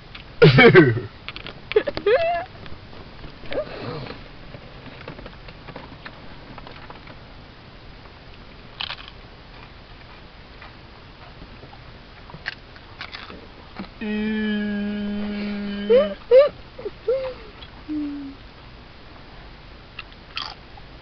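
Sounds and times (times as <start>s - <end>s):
rustling in a car seat: 3.0s - 7.2s.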